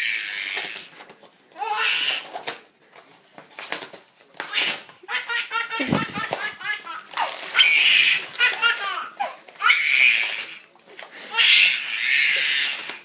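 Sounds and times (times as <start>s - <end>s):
baby laughing: 4.5s - 10.2s
dog ripping paper: 6.0s - 8.9s, 9.7s - 13.0s.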